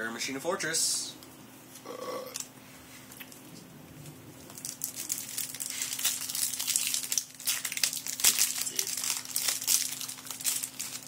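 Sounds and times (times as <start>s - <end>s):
foil wrappers crinkling and tearing: 4.4s - 11.0s.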